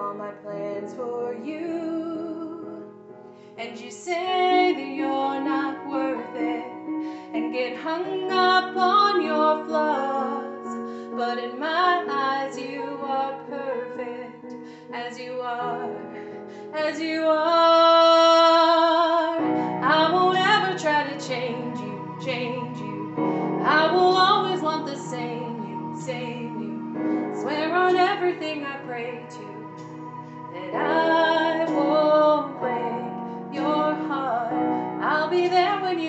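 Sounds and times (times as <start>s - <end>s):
woman singing: 0.0s - 3.0s, 3.6s - 36.0s
sustained accompaniment: 18.6s - 36.0s.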